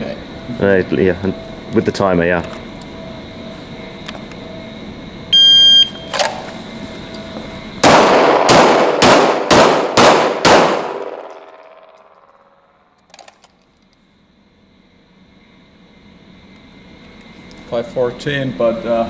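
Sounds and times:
shot timer beep: 5.4 - 6.1
pistol shots echoing indoors: 7.8 - 12.5.

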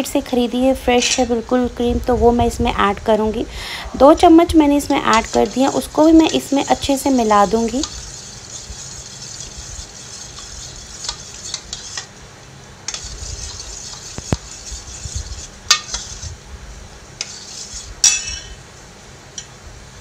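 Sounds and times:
spoon stirring and scraping bowl: 4.8 - 12.1, 12.9 - 16.4, 17.2 - 18.6.

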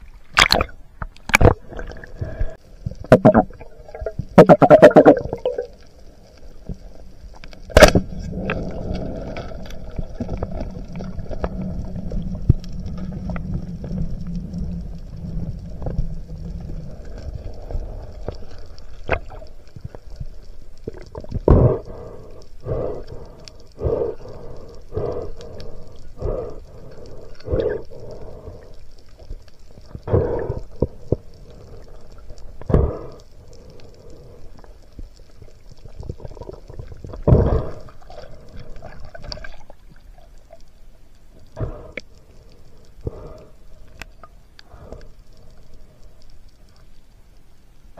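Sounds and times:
short water sounds: 0.0 - 5.8
muffled underwater water noise: 0.0 - 47.9.

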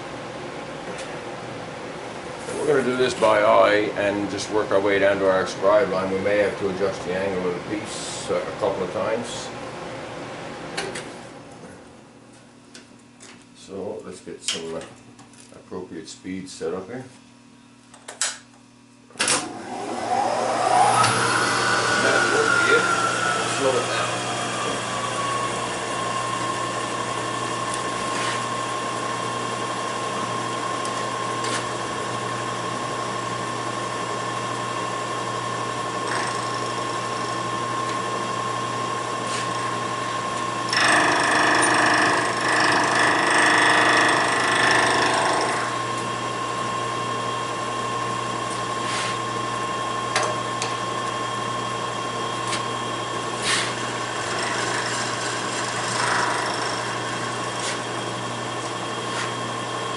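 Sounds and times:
milling machine spindle whine: 19.4 - 59.9
metal cutting noise: 19.8 - 28.6, 53.4 - 58.1.

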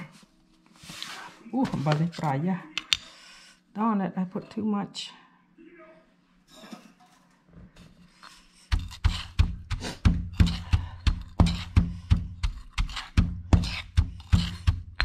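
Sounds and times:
pestle pounding in mortar: 8.7 - 15.0.

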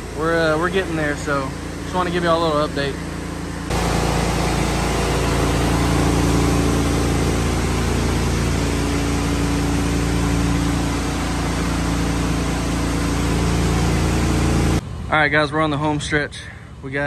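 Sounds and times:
engine and pump drone: 0.0 - 17.0
pressure washer hiss: 3.7 - 14.8.

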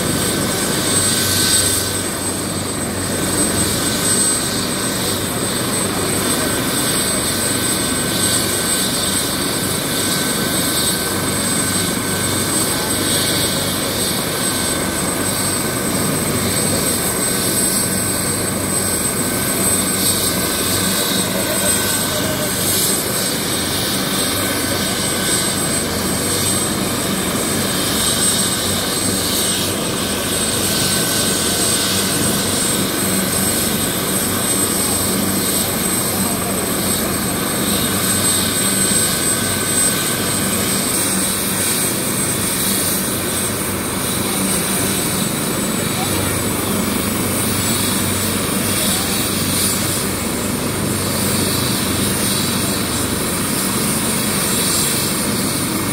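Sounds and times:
helicopter engine and rotor: 0.0 - 55.9.

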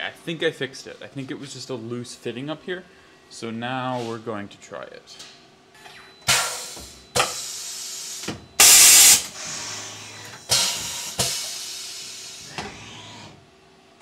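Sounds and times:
pneumatic air hisses: 6.3 - 13.3.

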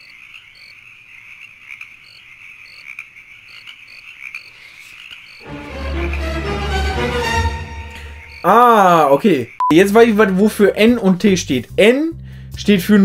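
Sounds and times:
frogs croaking: 0.0 - 6.5, 7.5 - 9.7
high insect-like chirps: 7.9 - 9.7.

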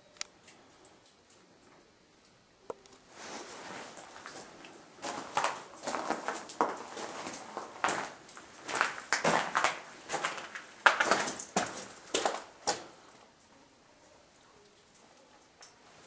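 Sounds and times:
footsteps in a mine tunnel: 3.0 - 13.3.

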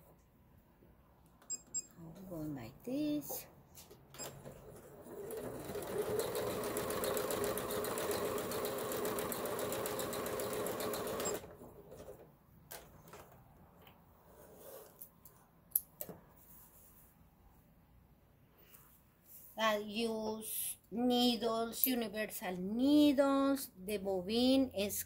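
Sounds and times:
sewing machine stitching: 4.2 - 12.2.

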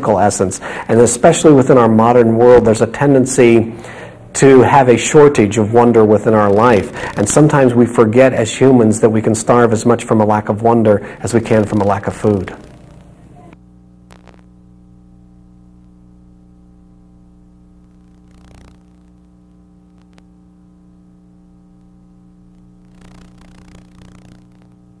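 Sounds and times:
crackling static: 0.0 - 25.0
low electrical mains hum: 0.0 - 25.0
faint clicks: 17.8 - 20.3.

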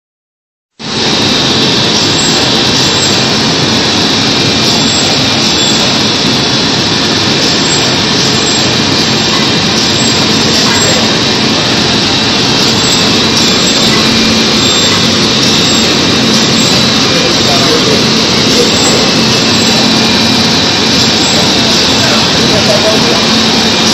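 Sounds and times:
low machine hum: 0.8 - 23.9
printing press hissing: 0.8 - 23.9.

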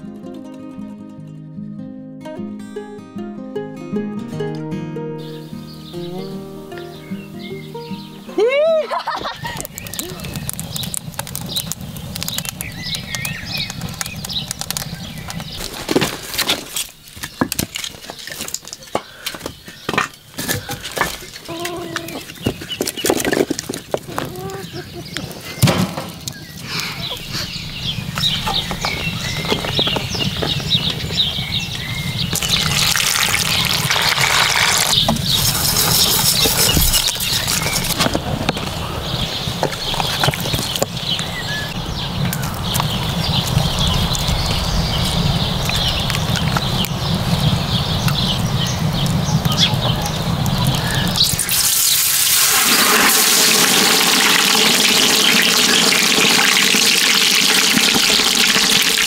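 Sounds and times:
firewood clattering: 9.0 - 27.4, 32.3 - 38.8
oil sizzling and bubbling: 9.2 - 15.8, 31.9 - 38.0, 45.1 - 59.0
hens clucking: 20.6 - 23.0.

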